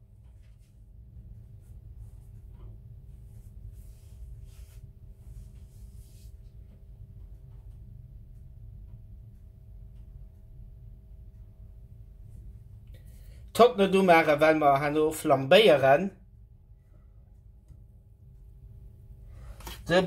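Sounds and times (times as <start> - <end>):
faint rustling: 0.0 - 7.8.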